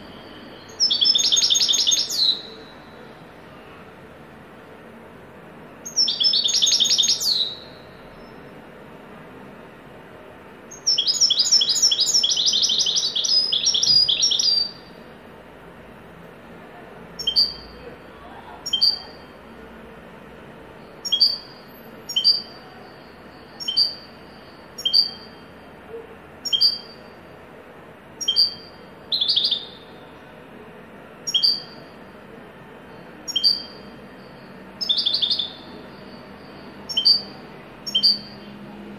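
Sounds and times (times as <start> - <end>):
goldfinch twittering song: 0.6 - 2.6, 5.8 - 7.7, 10.7 - 14.8, 18.6 - 19.1, 21.0 - 22.5, 23.6 - 24.1, 24.8 - 25.3, 26.4 - 27.0, 28.2 - 29.8, 31.3 - 31.8, 33.3 - 33.8, 34.8 - 35.7, 36.8 - 38.4.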